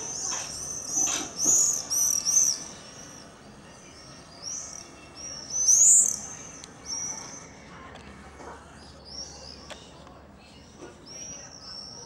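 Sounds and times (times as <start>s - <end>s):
birds chirping: 0.0s - 7.7s.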